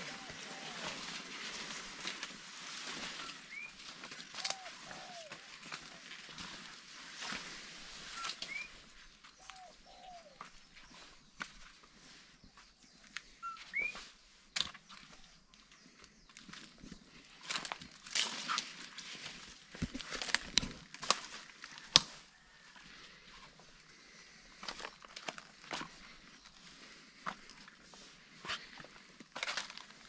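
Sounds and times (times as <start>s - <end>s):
footsteps crunching on dry leaves: 0.0s - 30.0s
bird chirp: 3.2s - 6.0s, 8.1s - 17.2s.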